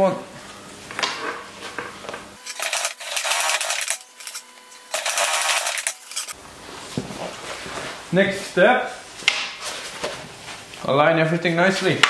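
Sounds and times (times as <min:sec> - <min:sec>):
industrial sewing machine stitching: 0:02.4 - 0:06.4.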